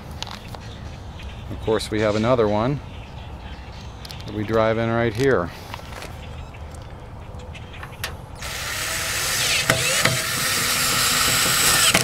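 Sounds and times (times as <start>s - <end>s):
drill driving a screw: 8.4s - 12.0s.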